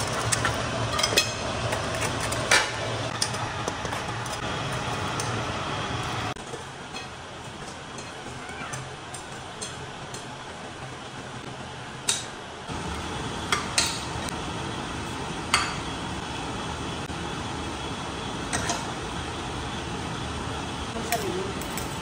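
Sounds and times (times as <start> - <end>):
utensil clinking on dishes: 0.0 - 4.4, 6.4 - 10.3
steady background noise: 0.0 - 22.0.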